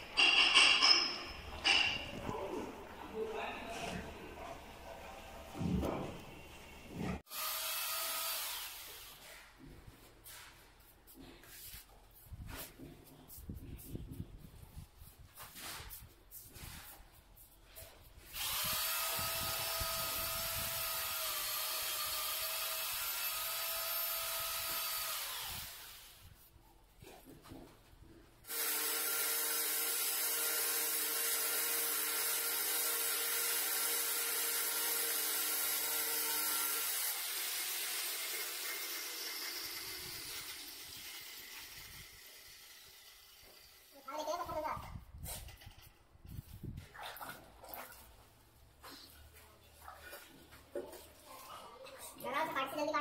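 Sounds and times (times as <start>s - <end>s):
power tool whining: 7.0s - 9.3s, 18.3s - 26.2s, 28.5s - 43.8s.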